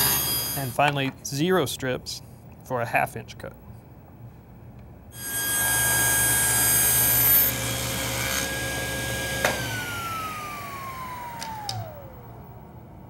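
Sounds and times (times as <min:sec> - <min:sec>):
saw cutting wood: 0:00.0 - 0:00.7, 0:05.2 - 0:12.0
table saw motor whine: 0:00.0 - 0:00.8, 0:05.2 - 0:12.8.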